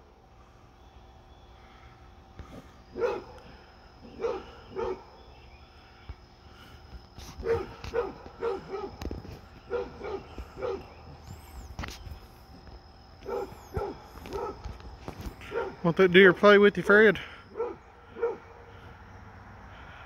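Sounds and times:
dog barking: 0:02.9 - 0:03.4, 0:04.1 - 0:05.1, 0:07.4 - 0:09.1, 0:09.7 - 0:11.0, 0:13.2 - 0:14.7, 0:15.4 - 0:15.8, 0:17.5 - 0:18.5.

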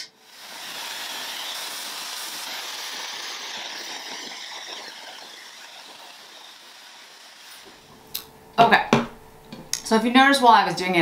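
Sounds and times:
hair dryer blowing: 0:00.0 - 0:08.3.

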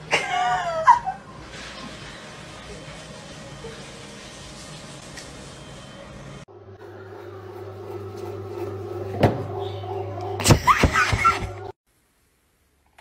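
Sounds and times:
bread machine motor humming: 0:05.2 - 0:11.8.

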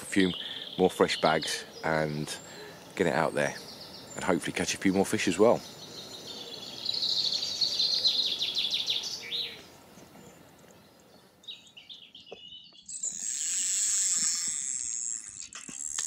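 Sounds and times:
songbird trilling: 0:00.0 - 0:15.9
steady high hiss: 0:12.9 - 0:16.0.

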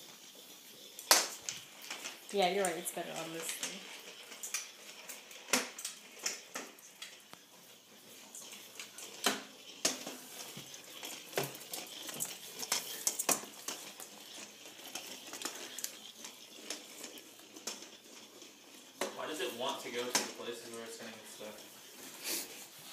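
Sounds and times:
plastic ball knocking on tiles: 0:01.0 - 0:01.4.

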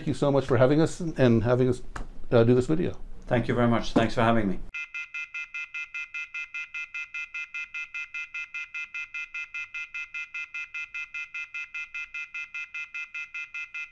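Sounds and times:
rapid electronic beeping: 0:04.8 - 0:13.9.

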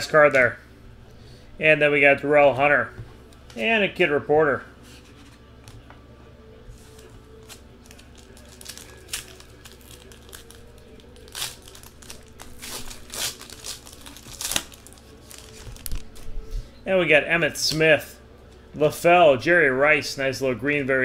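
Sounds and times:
wrapper tearing and crinkling: 0:06.9 - 0:16.3.

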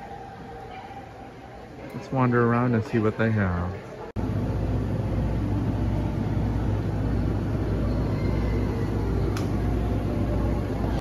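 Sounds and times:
constant low hum: 0:04.2 - 0:11.0
monorail train rumbling: 0:04.2 - 0:11.0.

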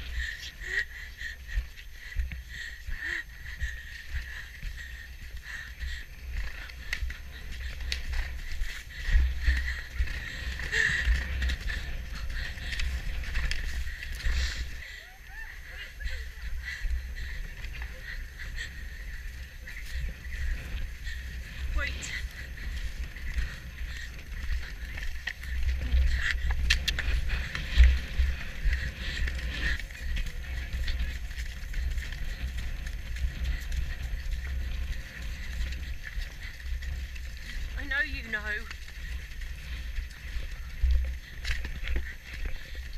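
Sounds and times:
hoofbeats on grass: 0:00.0 - 0:42.9
low rumble: 0:00.0 - 0:42.9
wind buffeting microphone: 0:00.0 - 0:42.9.

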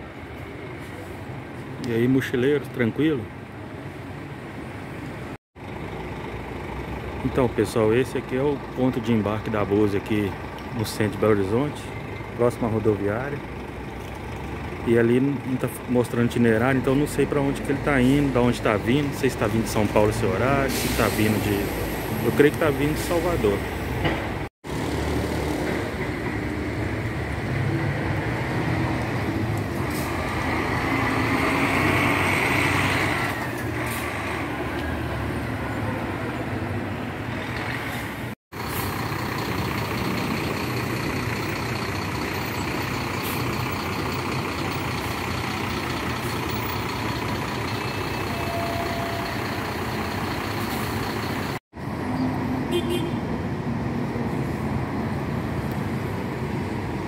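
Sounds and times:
traffic noise: 0:00.0 - 0:57.0
bus diesel engine running: 0:03.0 - 0:52.1
air brake hiss: 0:20.6 - 0:22.0.

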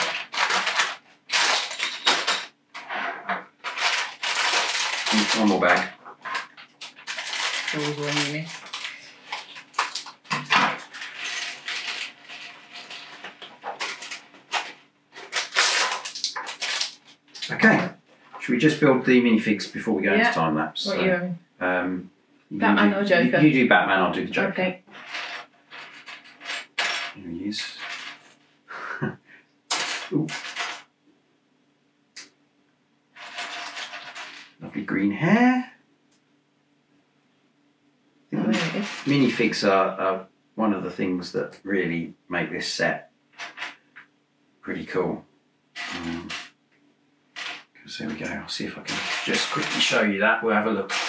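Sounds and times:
plastic bags rustling: 0:00.0 - 0:02.5, 0:03.6 - 0:17.6
plastic bricks clattering on table: 0:00.0 - 0:02.9, 0:03.6 - 0:17.5, 0:25.0 - 0:28.3, 0:29.7 - 0:30.9, 0:33.2 - 0:34.6, 0:38.5 - 0:39.2, 0:43.4 - 0:43.8, 0:47.4 - 0:47.7, 0:48.9 - 0:50.0
plastic pieces rattling: 0:00.0 - 0:02.9, 0:03.6 - 0:17.6, 0:24.9 - 0:28.3, 0:29.7 - 0:30.8, 0:33.2 - 0:34.6, 0:38.5 - 0:39.3, 0:43.4 - 0:43.8, 0:48.9 - 0:50.0.

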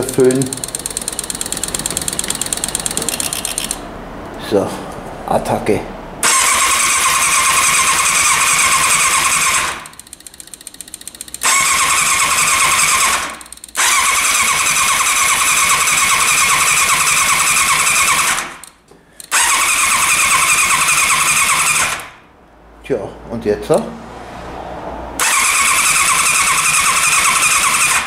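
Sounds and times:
fast light ticking: 0:00.0 - 0:03.8, 0:09.8 - 0:11.6, 0:13.3 - 0:13.9
electric starter cranking engine: 0:00.0 - 0:03.9, 0:06.2 - 0:22.2, 0:25.2 - 0:28.0.

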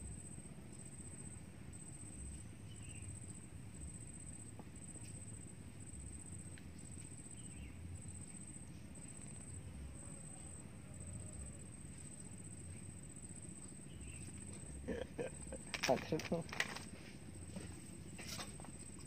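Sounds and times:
insect trilling: 0:12.7 - 0:16.6.

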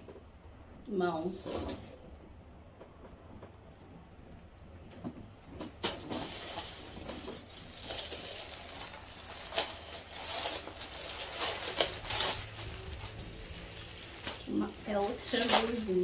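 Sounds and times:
plastic packaging crinkling: 0:05.7 - 0:16.0.

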